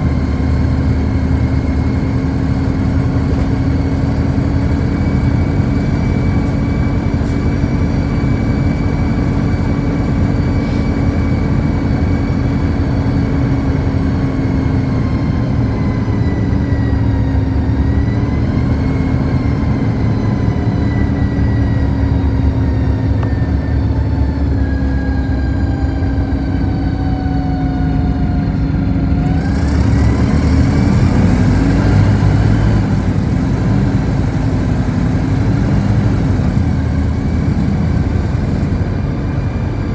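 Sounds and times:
bus drivetrain rumble: 0.0 - 39.9
bus drivetrain whine: 0.0 - 39.9.

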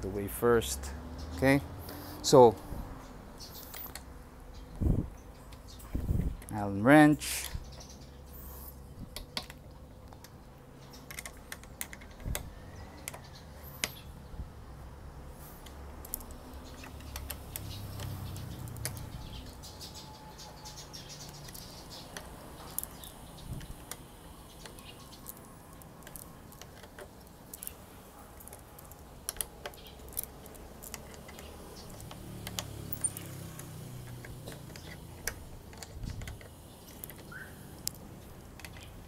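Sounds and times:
allen key clicking on screw: 9.1 - 14.1, 15.6 - 20.0, 20.6 - 27.8, 28.4 - 39.0.

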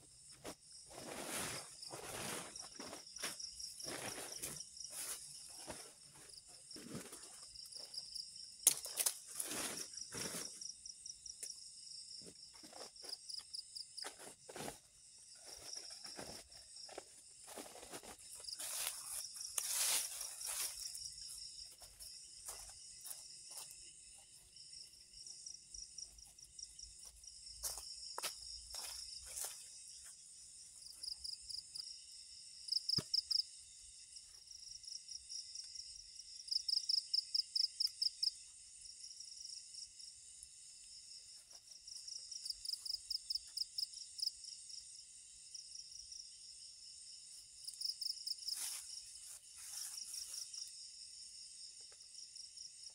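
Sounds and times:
forest insects chorus: 0.0 - 52.9
footsteps on dry leaves: 0.4 - 6.2, 14.1 - 23.8, 27.0 - 29.8, 48.4 - 50.6.

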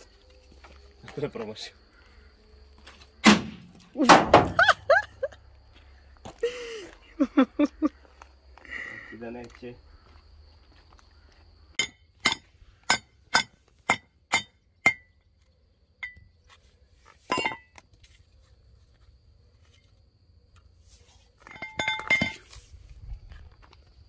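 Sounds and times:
ceramic pieces clinking: 17.3 - 17.8, 21.5 - 22.6.

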